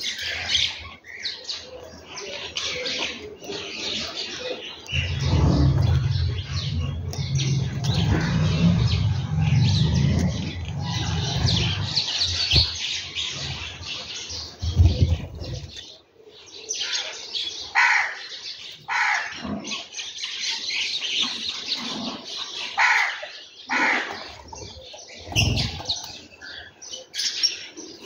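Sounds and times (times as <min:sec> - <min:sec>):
sparrows chirping: 0:00.0 - 0:28.0
low rumble: 0:04.9 - 0:12.8.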